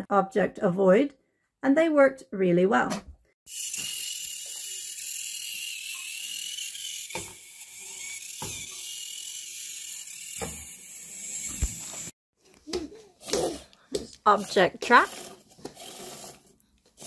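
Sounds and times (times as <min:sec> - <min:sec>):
small motors whirring: 0:03.5 - 0:12.2.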